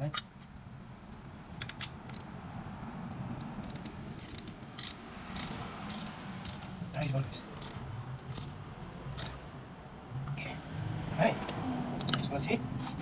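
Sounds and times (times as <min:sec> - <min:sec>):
socket ratchet clicking: 0:03.4 - 0:09.4, 0:12.0 - 0:12.3.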